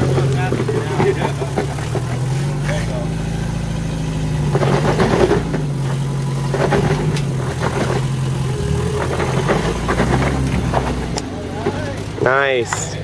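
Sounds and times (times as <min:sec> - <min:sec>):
car engine at low revs: 0:00.0 - 0:13.0
tyres crunching and scraping rock: 0:00.0 - 0:13.0.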